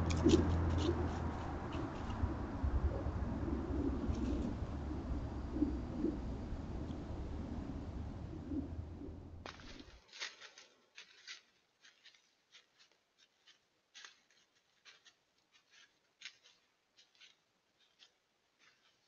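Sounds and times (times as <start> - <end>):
deer hooves stepping through dry leaves: 0.0 - 2.2, 9.4 - 19.0.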